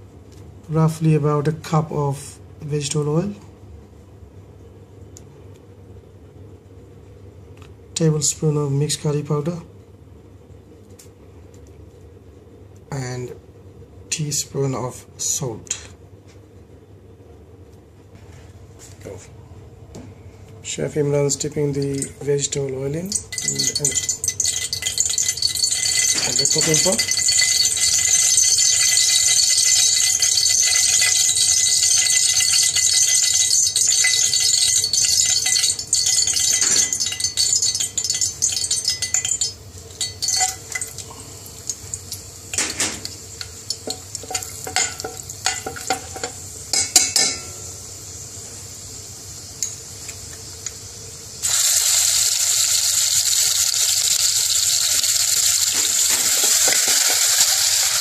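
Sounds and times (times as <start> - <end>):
steady hiss: 21.1 - 58.0
spoon clinking against metal pot: 23.1 - 41.0, 43.8 - 47.6
paste sizzling in hot oil: 23.3 - 47.0, 51.3 - 58.0.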